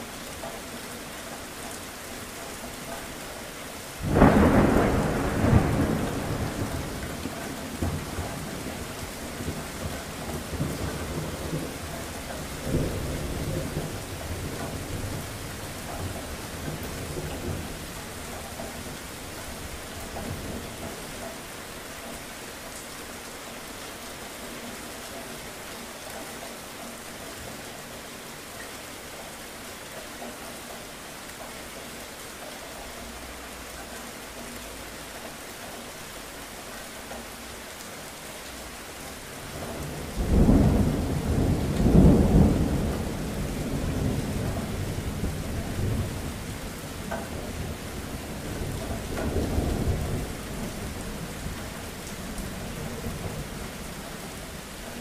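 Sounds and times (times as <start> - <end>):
steady rain falling: 0.0 - 55.0
thunder rumbling: 4.0 - 21.1, 39.5 - 55.0.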